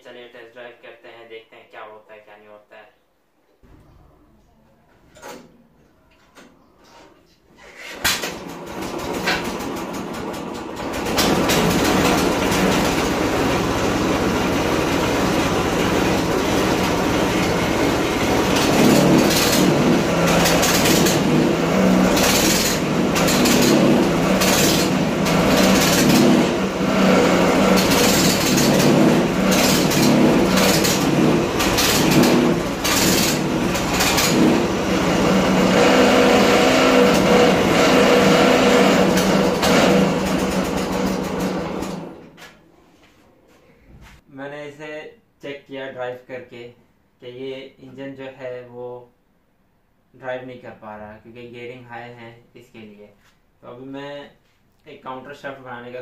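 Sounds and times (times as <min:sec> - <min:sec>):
small engine revving: 0:08.2 - 0:42.3.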